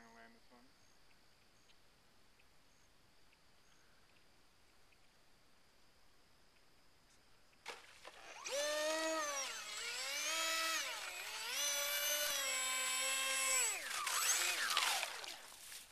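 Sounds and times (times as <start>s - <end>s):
model seaplane motor whining: 8.1s - 15.6s.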